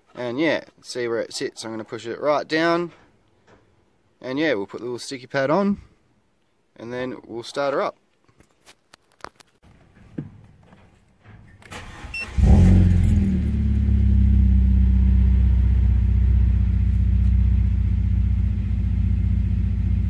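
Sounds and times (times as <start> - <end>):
car engine starting and idling: 11.6 - 20.0.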